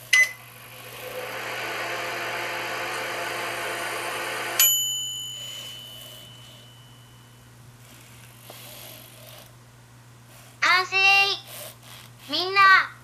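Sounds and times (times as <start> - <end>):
oven hum: 0.0 - 7.3
high bell-like ding: 4.6 - 7.4.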